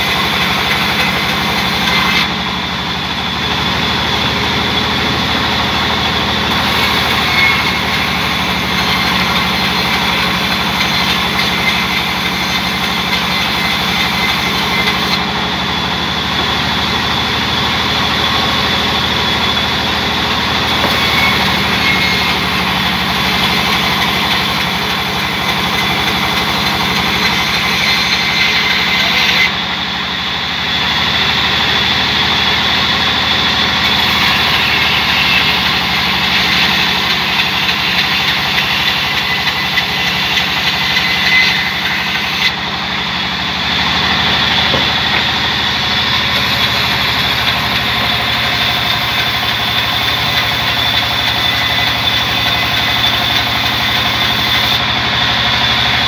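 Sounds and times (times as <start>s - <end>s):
band saw ripping log: 0.0s - 2.4s, 6.5s - 15.3s, 20.4s - 29.6s, 33.8s - 43.0s, 43.7s - 54.8s.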